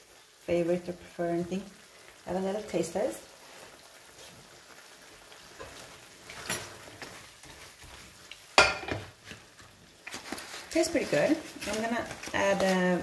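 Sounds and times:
faint sizzle: 0.0 - 13.0
spatula scraping sauce in pan: 5.5 - 13.0.

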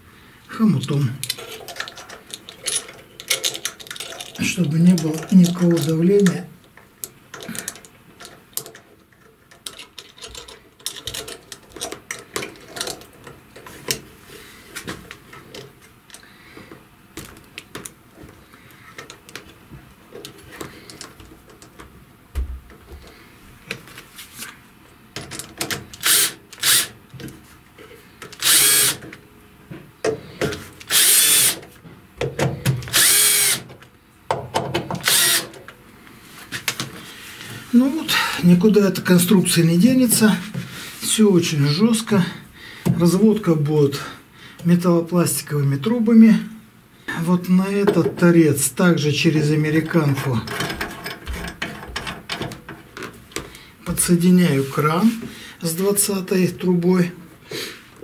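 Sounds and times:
clicks of pipe fittings handled: 1.2 - 14.1
cordless drill driving screws: 26.0 - 27.0, 28.4 - 29.0, 30.8 - 31.6, 32.9 - 33.7, 35.0 - 35.6.

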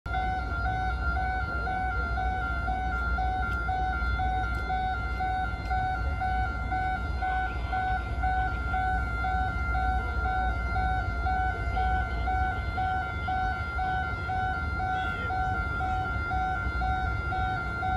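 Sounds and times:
two-tone electronic warning alarm: 0.1 - 17.9.

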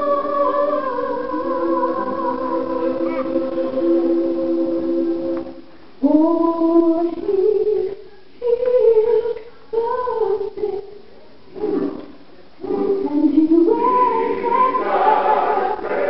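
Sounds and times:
gospel choir singing: 0.0 - 5.7, 11.5 - 16.0.

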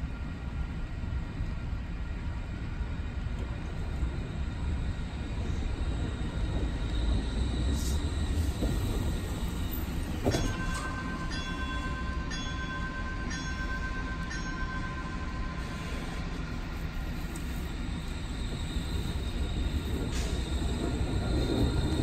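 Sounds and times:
light rail vehicle rumbling: 0.0 - 22.0
steady ringing tone: 9.5 - 20.0
bell-like chime: 10.2 - 16.4.

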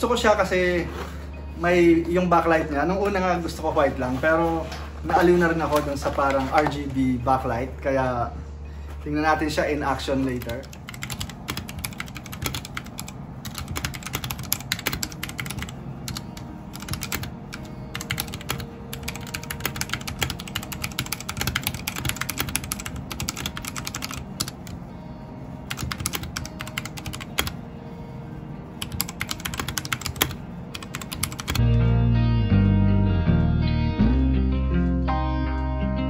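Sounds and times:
fast mechanical keyboard typing: 10.2 - 24.8, 25.7 - 27.6, 28.8 - 31.6.

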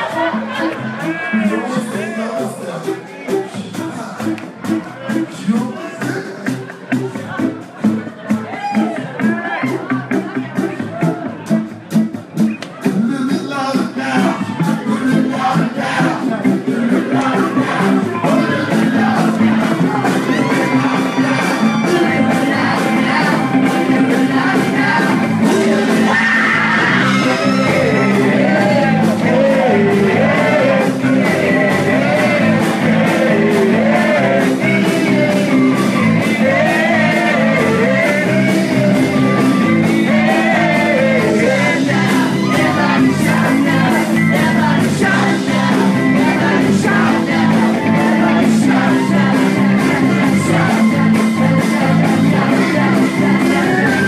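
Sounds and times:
live rock band playing: 0.0 - 54.0
lead singer singing: 13.0 - 54.0.

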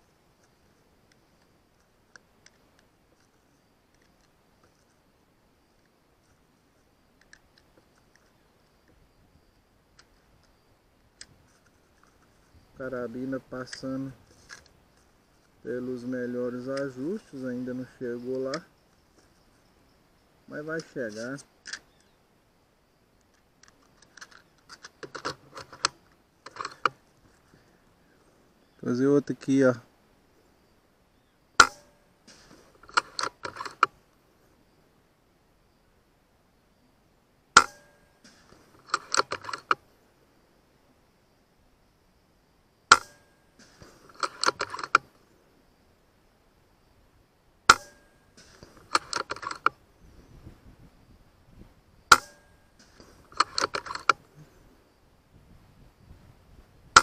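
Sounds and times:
air rifle mechanical clicks: 0.4 - 5.0, 7.2 - 9.0, 20.6 - 22.2, 23.2 - 27.0, 31.6 - 34.0, 37.6 - 39.8, 42.9 - 45.2, 47.7 - 49.8, 52.1 - 54.3
rifle action clicks: 21.6 - 22.1, 37.6 - 39.8, 42.9 - 45.1, 47.7 - 49.8, 52.1 - 54.2.

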